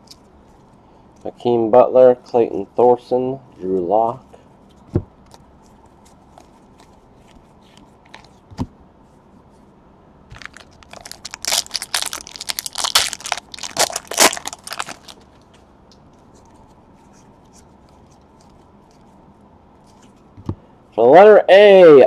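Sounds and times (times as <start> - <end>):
foil wrapper tearing and crinkling: 10.3 - 15.2.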